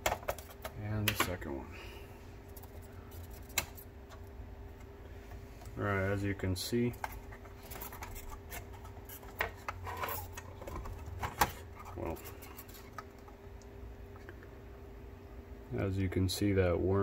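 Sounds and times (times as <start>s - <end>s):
plastic parts clicking and rubbing: 0.0s - 1.4s, 6.9s - 13.4s
faint steady hum: 0.0s - 17.0s.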